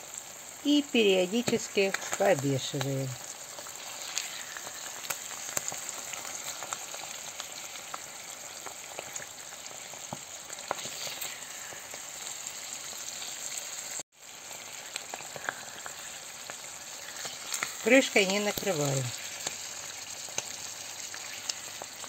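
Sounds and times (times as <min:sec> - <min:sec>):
mushrooms sizzling in oil: 0:00.0 - 0:22.0
spatula stirring: 0:10.6 - 0:11.6.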